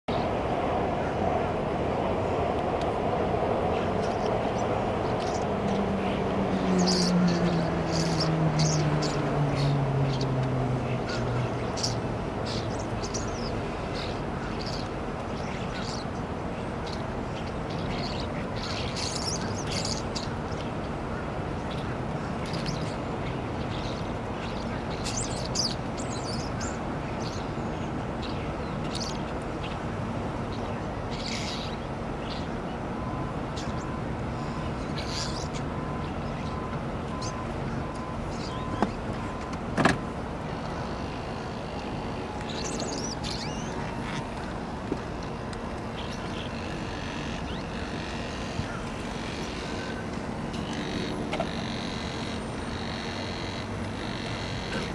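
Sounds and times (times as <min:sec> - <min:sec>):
starlings chirping: 0:03.7 - 0:29.8, 0:30.4 - 0:39.5, 0:40.4 - 0:54.9.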